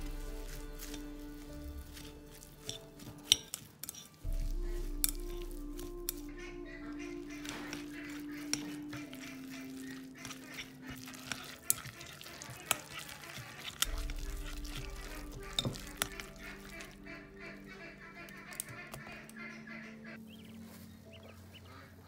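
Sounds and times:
chopsticks stirring wet mixture: 0:00.0 - 0:22.0
soft background music: 0:00.0 - 0:22.0
chopsticks clicking on glass bowl: 0:02.0 - 0:04.1.

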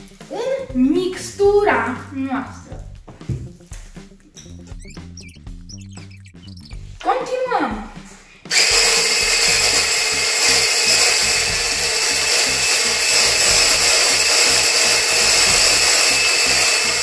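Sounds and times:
electric hand blender running: 0:08.5 - 0:17.0.

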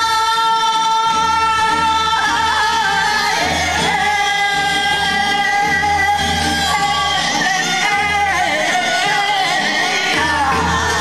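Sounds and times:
group of singers: 0:00.0 - 0:11.0
musical accompaniment: 0:00.0 - 0:11.0.

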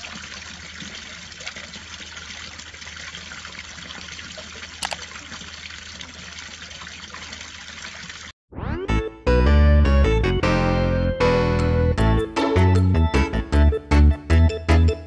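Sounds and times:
water splashing from fountain: 0:00.0 - 0:08.3.

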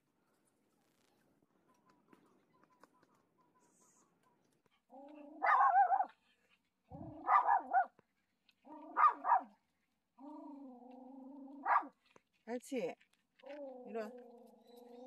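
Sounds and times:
small dog growling: 0:04.8 - 0:07.9, 0:08.6 - 0:09.5, 0:10.2 - 0:12.2, 0:13.4 - 0:15.0
small dog barking: 0:05.0 - 0:06.2, 0:06.9 - 0:08.0, 0:08.6 - 0:09.6, 0:11.4 - 0:12.0.

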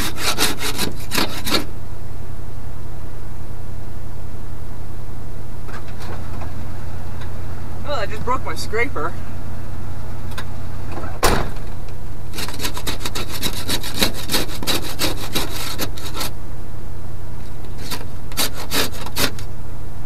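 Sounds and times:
ice scraper scraping glass: 0:00.0 - 0:01.7, 0:12.3 - 0:16.3, 0:17.7 - 0:19.5
truck door slamming: 0:11.0 - 0:11.8.

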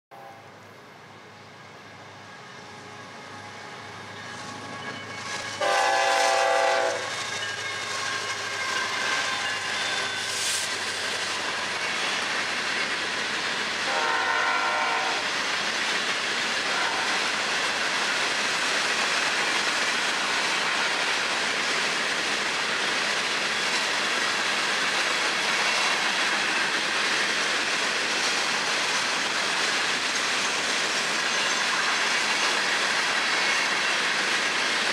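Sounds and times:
locomotive air horn: 0:00.1 - 0:00.6, 0:05.6 - 0:07.1, 0:13.9 - 0:15.3, 0:16.7 - 0:17.3
freight train approaching: 0:00.1 - 0:34.9
train cars rolling on steel wheels: 0:01.0 - 0:34.9.

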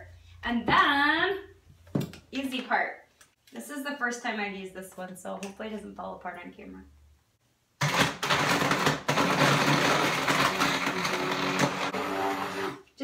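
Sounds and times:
immersion blender running: 0:07.8 - 0:12.8.

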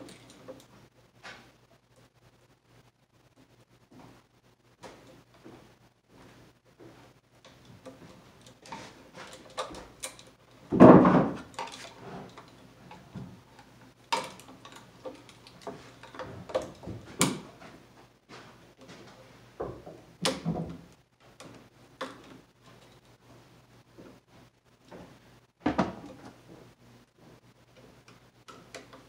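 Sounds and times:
tool clicks taps and rattles: 0:07.4 - 0:17.5, 0:27.7 - 0:29.0.

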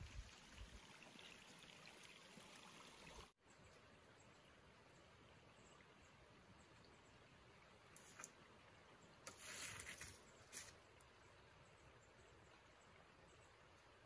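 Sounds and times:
water trickling: 0:00.0 - 0:03.4
forest ambience: 0:03.4 - 0:14.0.

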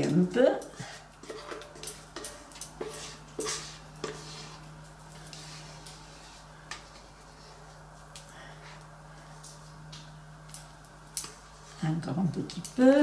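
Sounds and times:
spatula scraping a steel bowl: 0:00.8 - 0:07.6.

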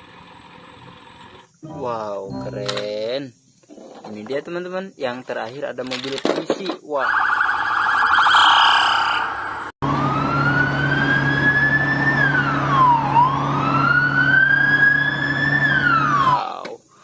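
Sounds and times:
fast warbling siren: 0:07.0 - 0:16.4
police siren wailing: 0:07.0 - 0:16.4.

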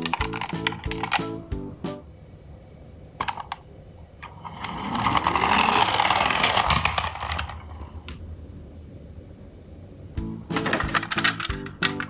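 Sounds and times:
toy motor gears whirring: 0:00.0 - 0:01.3, 0:04.3 - 0:07.8.

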